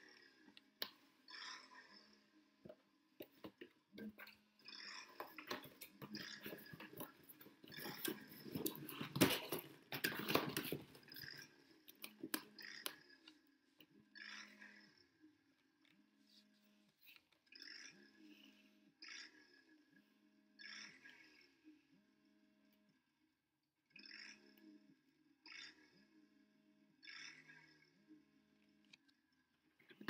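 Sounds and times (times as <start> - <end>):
cardboard rustling and scraping: 5.2 - 11.0.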